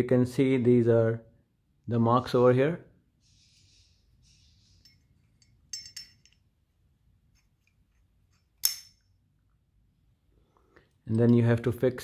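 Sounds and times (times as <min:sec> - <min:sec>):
faint metal scraping: 0:03.2 - 0:06.4
metallic clinks: 0:04.7 - 0:06.5.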